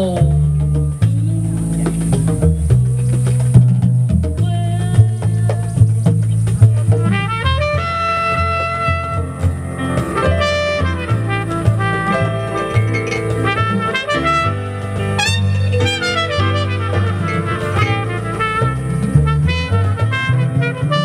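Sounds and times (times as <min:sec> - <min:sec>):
upright double bass: 0:00.0 - 0:21.0
trumpet playing jazz: 0:04.3 - 0:21.0.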